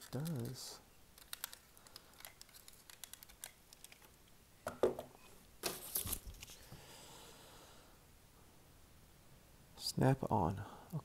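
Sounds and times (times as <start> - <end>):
plastic toy parts clicking: 1.2 - 4.1
paper rustling: 5.6 - 6.7.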